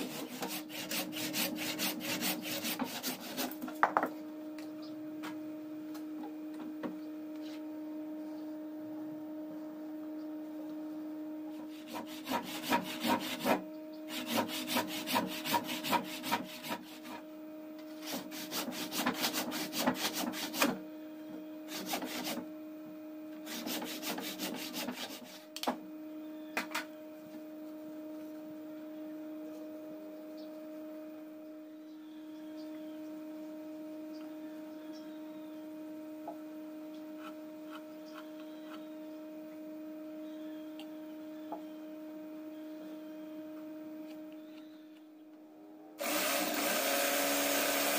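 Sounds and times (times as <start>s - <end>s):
hatchet scraping wood: 0.0s - 3.9s, 11.6s - 17.3s, 18.0s - 20.8s, 21.7s - 22.4s, 23.4s - 25.5s
steady low hum: 0.0s - 46.1s.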